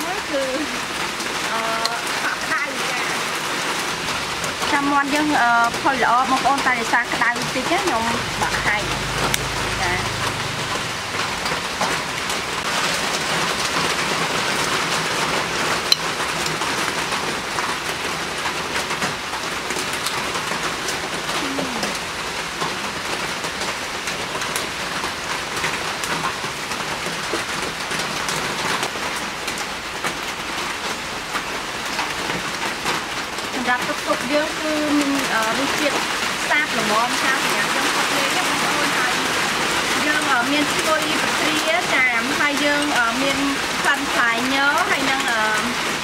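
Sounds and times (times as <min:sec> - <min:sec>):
rain pattering: 0:00.0 - 0:46.0.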